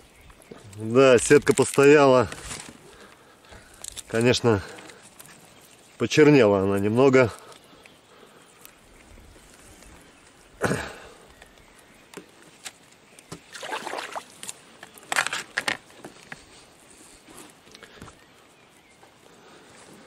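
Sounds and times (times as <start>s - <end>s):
water splashing and dripping: 13.3s - 14.5s
wet net hauled from water: 13.3s - 15.5s.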